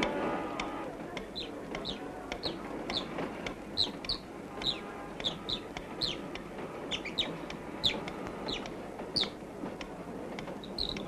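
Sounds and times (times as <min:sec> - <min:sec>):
chicks peeping: 0:00.0 - 0:03.2, 0:03.8 - 0:06.3, 0:06.9 - 0:09.4, 0:10.6 - 0:11.0.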